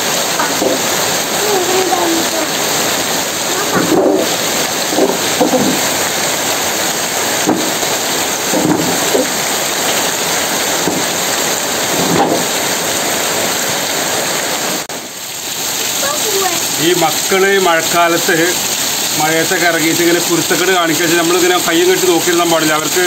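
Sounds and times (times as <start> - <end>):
heavy rain on ground and leaves: 0.0 - 23.0.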